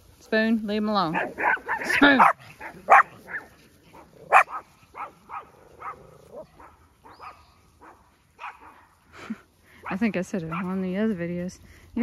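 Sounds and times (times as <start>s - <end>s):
dog barking and yipping: 1.0s - 9.0s, 9.8s - 10.8s.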